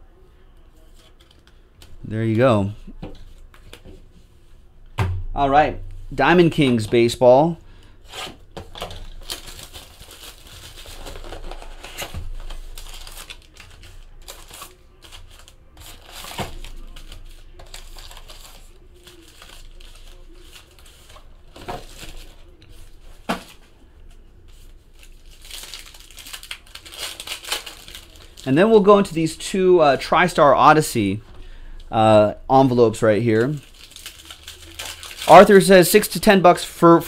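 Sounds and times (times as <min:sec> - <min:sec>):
plastic wrap crinkling and tearing: 0:08.0 - 0:23.6, 0:24.5 - 0:29.4, 0:32.8 - 0:36.1.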